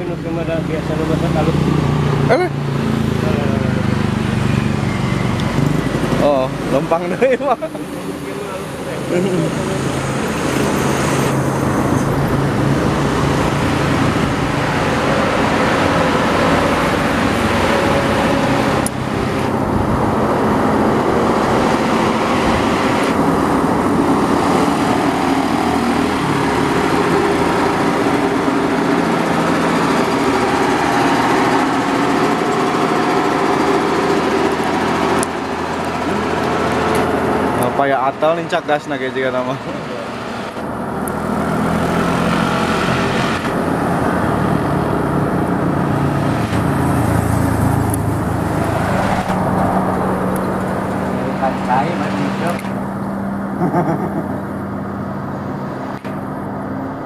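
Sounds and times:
diesel truck engine labouring: 0:00.0 - 0:57.0.

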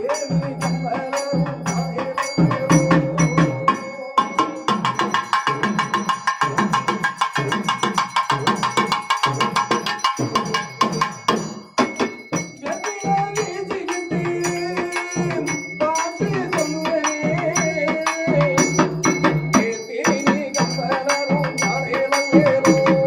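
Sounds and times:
hand drum rhythm: 0:00.0 - 0:23.0.

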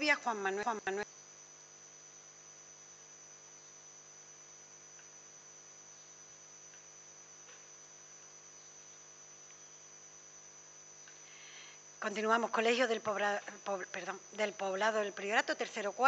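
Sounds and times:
steady electrical hum: 0:00.0 - 0:16.0
faint ticks: 0:04.9 - 0:05.2, 0:06.0 - 0:09.7, 0:11.0 - 0:11.3.

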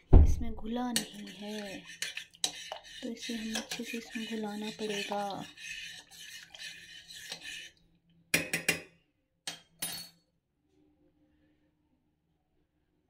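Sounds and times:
spoon scraping a saucepan: 0:00.9 - 0:07.8.

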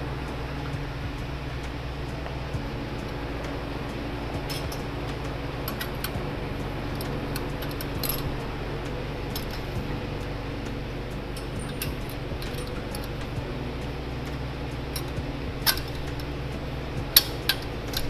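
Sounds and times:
low steady hum: 0:00.0 - 0:18.0
metal hooks clinking: 0:06.8 - 0:08.4, 0:11.3 - 0:13.4, 0:14.7 - 0:16.4.

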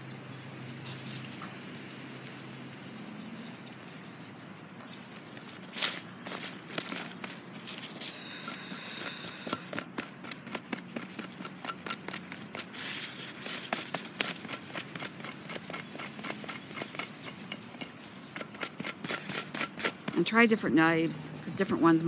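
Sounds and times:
knife scraping cactus pad: 0:03.2 - 0:20.5.

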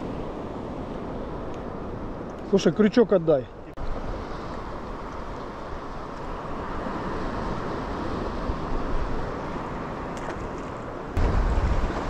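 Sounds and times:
sea waves: 0:00.0 - 0:12.0
wind on microphone: 0:03.7 - 0:12.0.

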